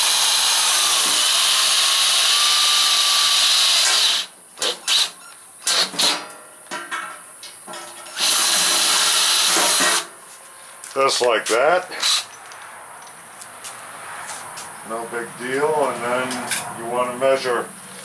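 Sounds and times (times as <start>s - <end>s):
cordless drill boring metal: 0.0s - 5.1s, 8.1s - 10.0s.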